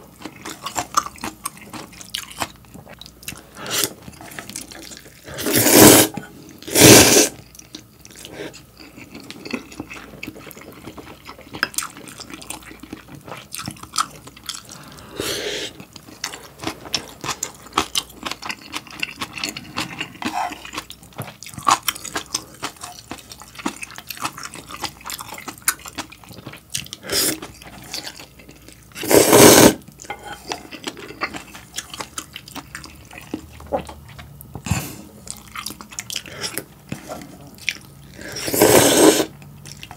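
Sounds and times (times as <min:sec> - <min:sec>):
soft wet chewing: 0:00.0 - 0:05.4, 0:07.4 - 0:29.0, 0:29.8 - 0:38.4, 0:39.3 - 0:39.9
loud noodle slurps: 0:05.3 - 0:07.4, 0:29.0 - 0:29.8, 0:38.2 - 0:39.3.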